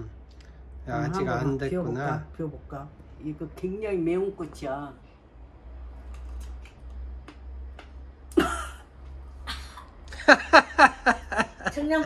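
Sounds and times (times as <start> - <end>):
person coughing and sputtering: 8.3 - 8.9
people laughing: 9.5 - 12.0.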